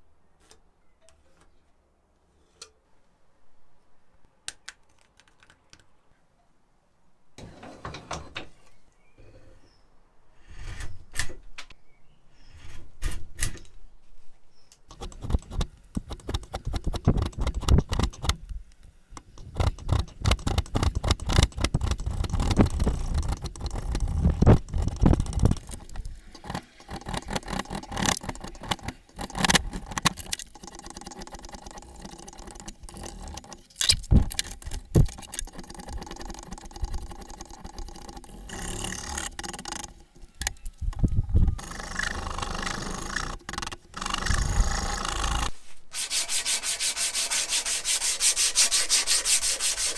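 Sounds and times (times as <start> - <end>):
sharp clicks and knocks: 14.7 - 45.5
hand tool scraping wood: 14.9 - 18.4, 19.2 - 40.6, 41.5 - 49.9.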